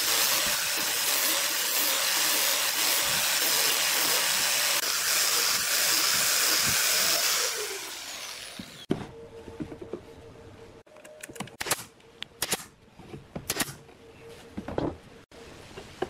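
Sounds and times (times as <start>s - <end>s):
woodworking power tool hissing: 0.0s - 8.9s.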